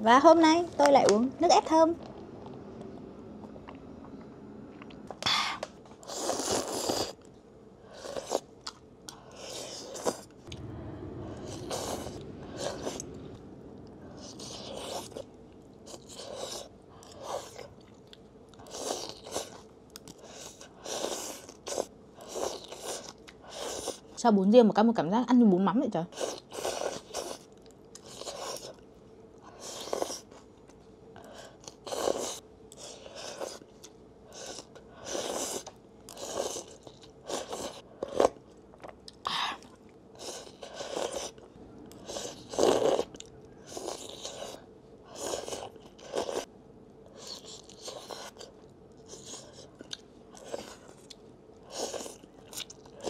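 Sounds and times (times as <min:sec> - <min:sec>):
slurping noodles: 0:06.0 - 0:07.2, 0:20.2 - 0:24.0, 0:26.2 - 0:28.7, 0:31.6 - 0:33.6, 0:34.3 - 0:38.4, 0:40.2 - 0:41.4, 0:42.0 - 0:46.5, 0:51.7 - 0:52.2
chewing: 0:26.1 - 0:46.5, 0:47.1 - 0:53.0.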